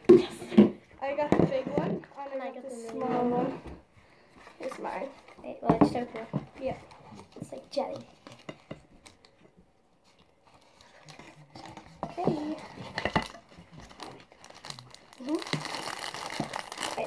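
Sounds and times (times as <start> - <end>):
packaging crinkling and rustling: 10.0 - 17.0.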